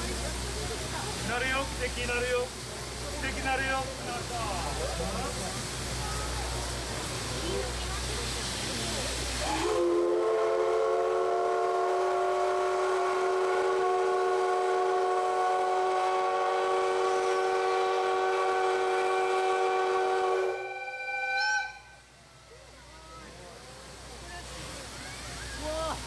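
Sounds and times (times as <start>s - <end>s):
steam locomotive whistle blast: 9.4s - 22.0s.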